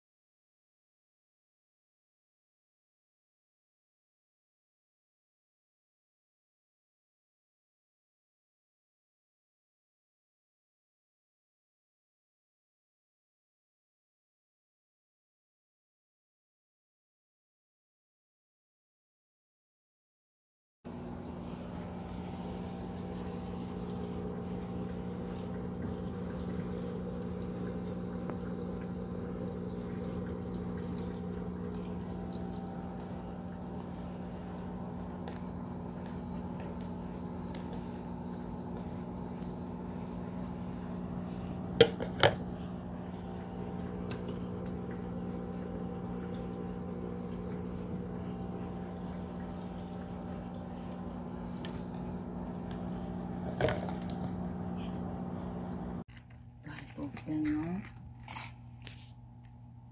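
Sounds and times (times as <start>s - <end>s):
water trickling and bubbling: 20.9s - 56.1s
aquarium pump humming: 20.9s - 59.9s.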